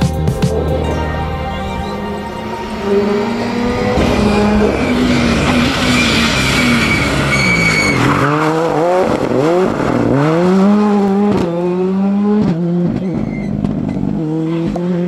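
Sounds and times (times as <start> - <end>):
rally car engine accelerating: 0.0 - 15.0
tyres squealing: 1.0 - 8.4.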